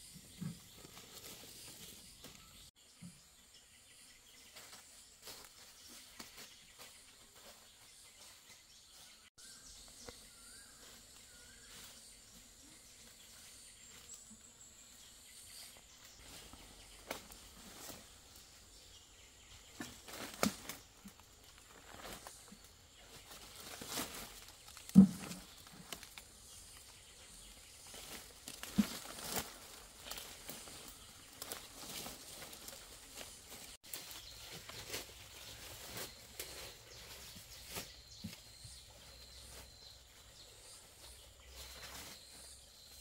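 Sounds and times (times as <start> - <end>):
rustling of brushed plants: 0.0 - 2.8, 4.3 - 43.0
footsteps in dry leaves: 4.4 - 14.4, 19.6 - 43.0.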